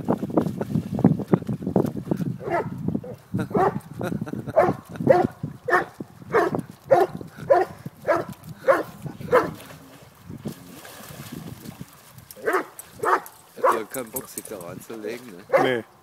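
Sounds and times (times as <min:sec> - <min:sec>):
dog barking: 0:02.4 - 0:02.7, 0:03.5 - 0:03.8, 0:04.6 - 0:09.6, 0:12.4 - 0:13.9, 0:15.5 - 0:15.8
faint splashing in puddle: 0:06.6 - 0:15.5.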